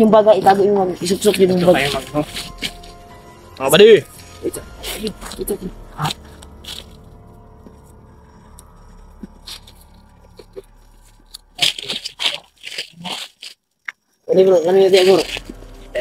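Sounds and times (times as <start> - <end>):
footsteps in dry leaves: 1.0 - 3.4, 4.0 - 7.3, 9.2 - 13.6, 14.5 - 16.0.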